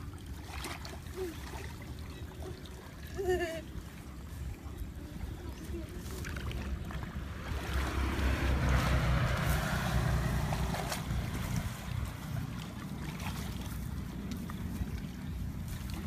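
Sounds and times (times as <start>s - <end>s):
water splashing and rushing: 0.0s - 16.0s
wind buffeting microphone: 3.7s - 16.0s.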